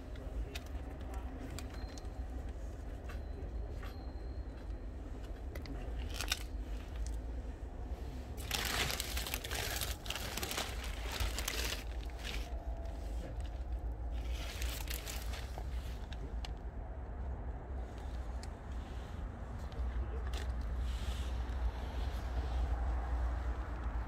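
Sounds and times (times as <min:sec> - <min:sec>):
low rumble: 0:06.0 - 0:20.7
plastic sheeting crinkling: 0:08.4 - 0:12.6, 0:14.2 - 0:15.8.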